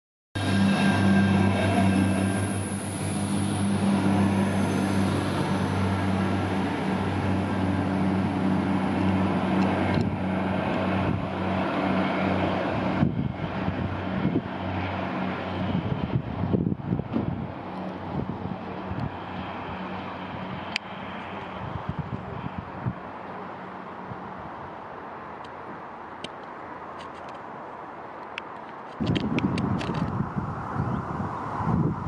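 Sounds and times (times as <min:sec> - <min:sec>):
train engines droning: 0:00.4 - 0:16.1
high whine: 0:00.4 - 0:22.4
wind buffeting microphone: 0:00.4 - 0:23.2, 0:28.8 - 0:32.0.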